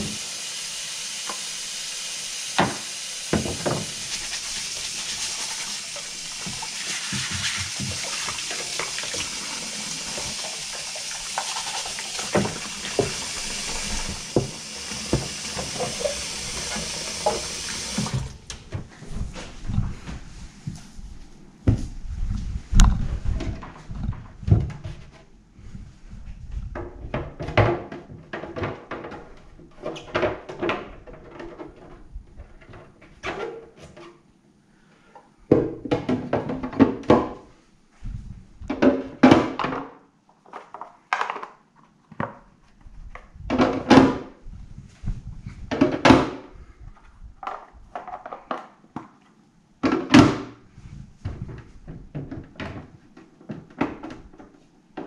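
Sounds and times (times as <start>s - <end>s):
plastic parts thunking and rattling: 26.7s - 33.4s, 35.5s - 37.4s, 47.4s - 49.2s.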